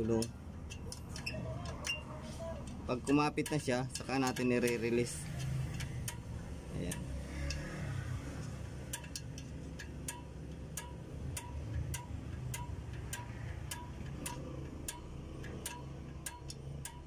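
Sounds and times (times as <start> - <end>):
brake adjuster clicking with ring: 0.0 - 6.3.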